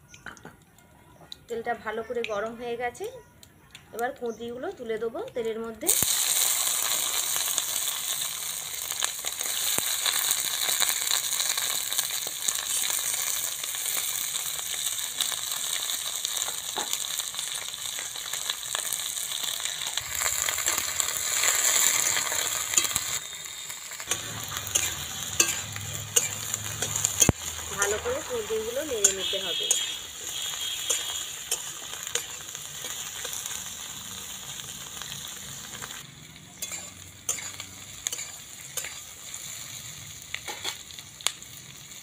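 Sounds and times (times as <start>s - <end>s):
vegetables sizzling in hot oil: 4.3s - 42.0s
metal spatula scraping pan: 24.1s - 28.0s, 36.6s - 39.1s.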